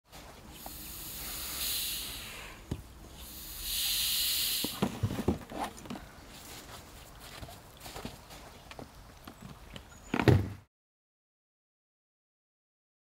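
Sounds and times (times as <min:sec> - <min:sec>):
hand pump hissing air: 0:00.5 - 0:05.1.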